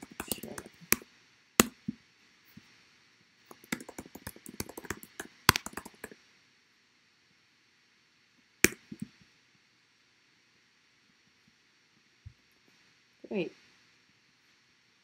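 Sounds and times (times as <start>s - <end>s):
computer keyboard typing: 0.0s - 1.0s, 3.5s - 6.2s.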